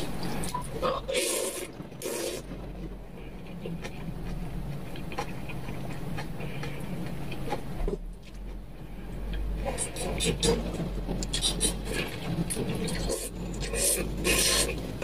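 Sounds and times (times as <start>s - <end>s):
low steady hum: 0.0s - 15.0s
wet chewing clicks: 0.2s - 8.6s, 9.2s - 15.0s
person slurping noodles: 0.3s - 2.6s, 9.6s - 14.8s.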